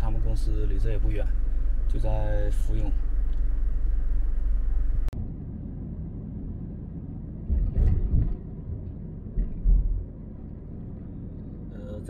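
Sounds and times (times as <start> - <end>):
car rumble from inside cabin: 0.0 - 5.6, 6.6 - 12.0.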